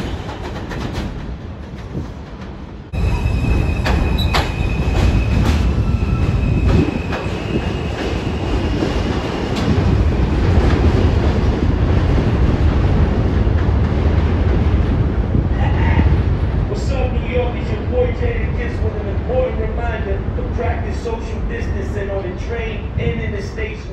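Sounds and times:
rail-joint clicks: 0.0s - 2.7s, 3.5s - 8.2s
subway train wheels rumbling: 0.0s - 23.9s
high wheel squeal: 3.0s - 8.5s.

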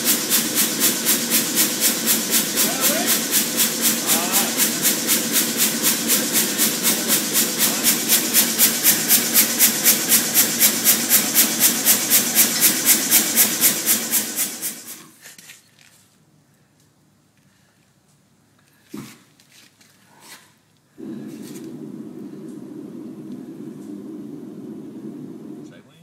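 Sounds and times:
gas forge burner pulsing hiss: 0.0s - 15.2s, 20.9s - 26.0s.

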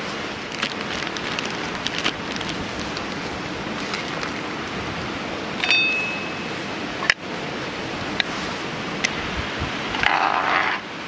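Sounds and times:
sharp crackles: 0.4s - 5.0s.

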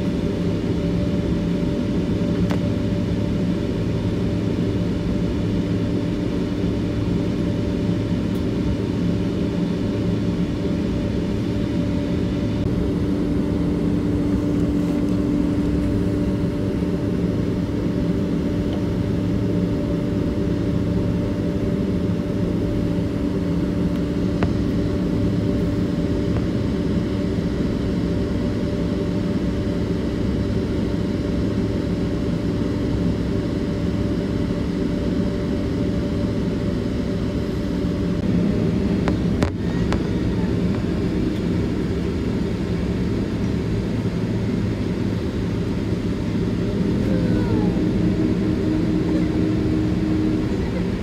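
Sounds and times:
aircraft engine drone in cabin: 0.0s - 51.0s
hum tones: 38.2s - 51.0s.

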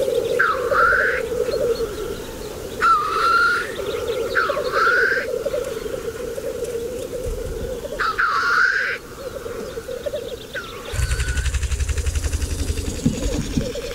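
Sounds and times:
bubbling bird chorus: 9.2s - 13.9s
loud hissing bird calls: 10.6s - 13.9s.

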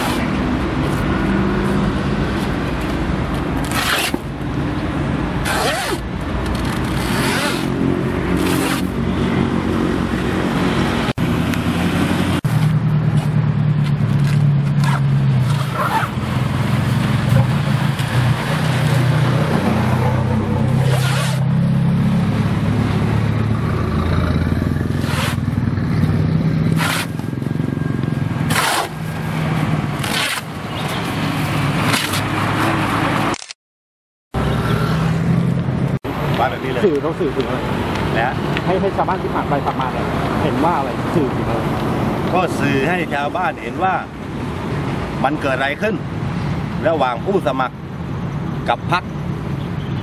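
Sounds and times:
vehicle engines running: 0.0s - 33.4s, 34.4s - 50.0s
traffic passing: 0.0s - 33.5s, 34.3s - 50.0s
banners ripping and scraping: 3.6s - 4.3s, 5.4s - 9.0s, 14.2s - 16.2s, 20.7s - 21.5s, 24.9s - 25.5s, 26.6s - 27.3s, 28.4s - 33.5s.

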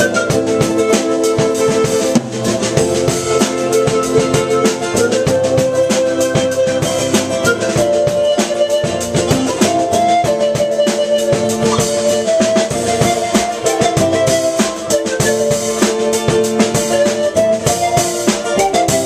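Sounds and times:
pan pipes melody: 0.0s - 19.0s
steady percussion beat: 0.0s - 19.0s.

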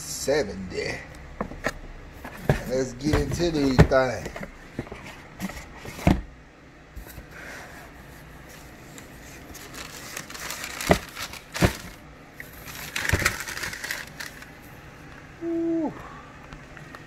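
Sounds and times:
tissue paper crinkling: 9.2s - 14.5s.

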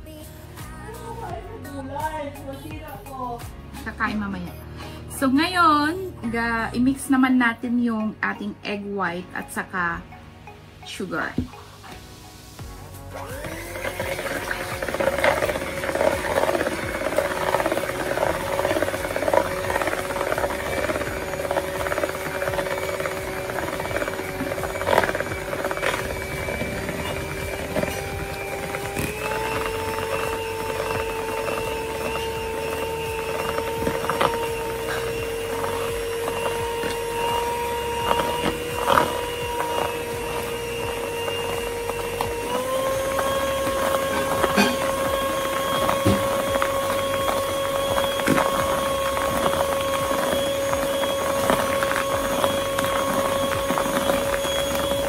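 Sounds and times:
electric hand mixer whirring: 11.2s - 55.0s.

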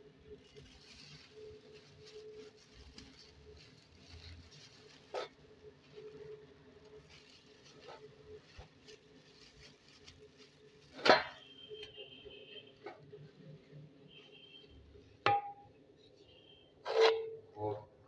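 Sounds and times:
plastic bags crinkling: 0.0s - 14.2s.

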